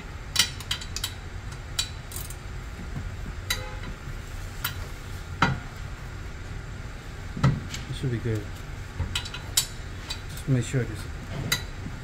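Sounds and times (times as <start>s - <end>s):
metallic clicks of brake pads: 0.3s - 2.4s, 7.5s - 10.5s.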